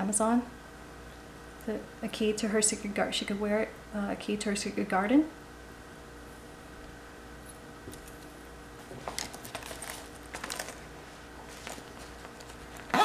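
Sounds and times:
small items clicking and tapping: 9.0s - 10.8s.

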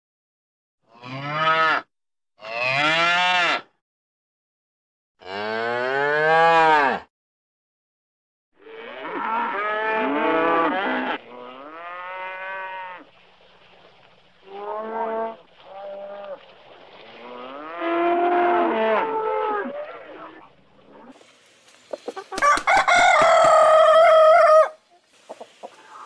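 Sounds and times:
cows mooing: 5.2s - 7.0s, 8.6s - 13.1s, 17.1s - 20.4s.

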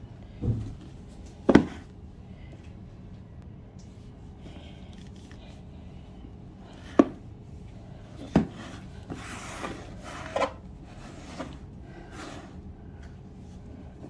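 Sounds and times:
box scraping on tile floor: 8.4s - 12.6s.

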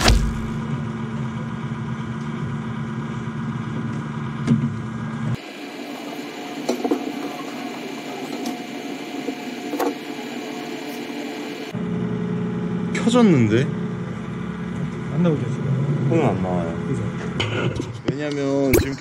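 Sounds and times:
computer cooling fans humming: 0.0s - 0.9s.

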